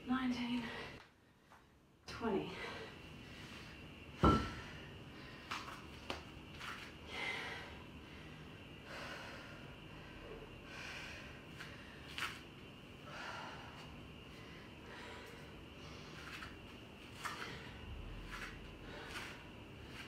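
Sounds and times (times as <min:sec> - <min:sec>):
woman breathing hard: 0:07.0 - 0:12.2, 0:13.0 - 0:16.4.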